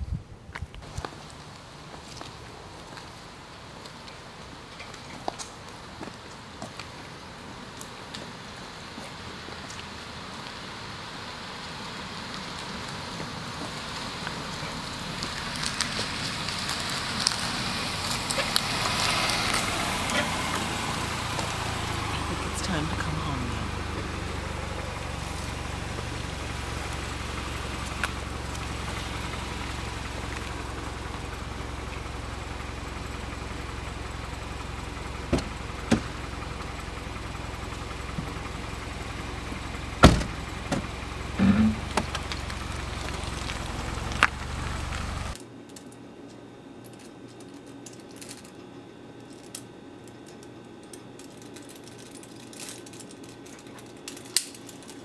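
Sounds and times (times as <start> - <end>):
car engine rumbling inside cabin: 8.3 - 45.4.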